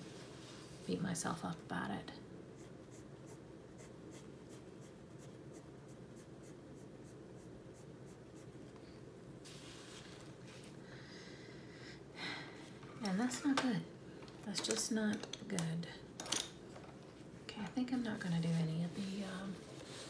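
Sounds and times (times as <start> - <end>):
colored pencil scratching on paper: 2.6 - 8.6.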